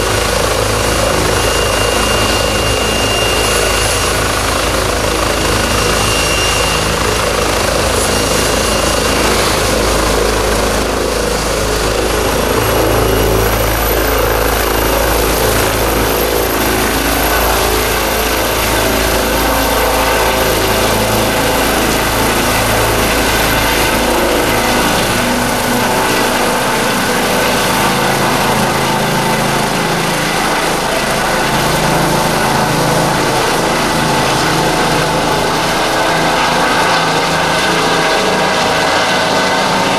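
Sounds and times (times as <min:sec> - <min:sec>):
helicopter turbine and rotor: 0:00.0 - 0:39.9
high whine rising in pitch: 0:00.2 - 0:09.4.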